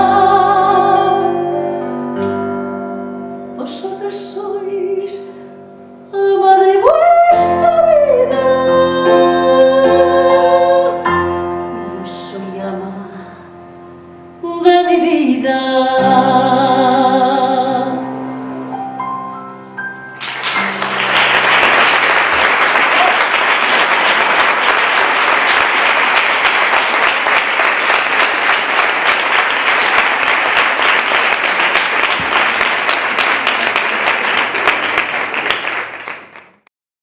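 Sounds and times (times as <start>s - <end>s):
woman singing with vibrato: 0.0s - 1.5s, 3.6s - 5.4s, 6.1s - 11.0s, 14.4s - 18.1s
piano chords: 0.0s - 36.3s
audience applauding: 20.2s - 36.7s.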